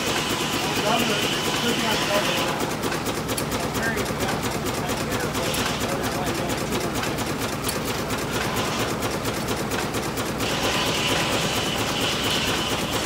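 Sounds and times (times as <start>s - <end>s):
steam engine clattering: 0.0s - 13.0s
steam hiss: 10.4s - 13.0s.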